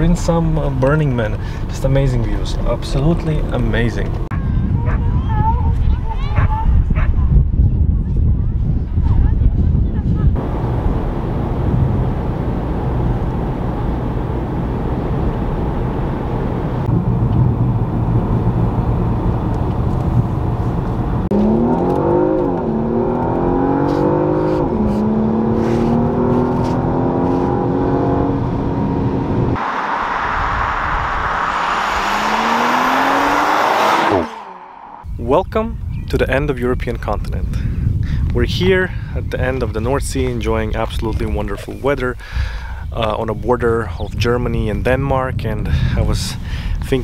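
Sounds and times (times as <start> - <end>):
car approaching: 0.0 - 4.4, 10.4 - 35.2
road noise: 0.0 - 6.6, 10.4 - 35.9
car engine accelerating: 10.4 - 35.1.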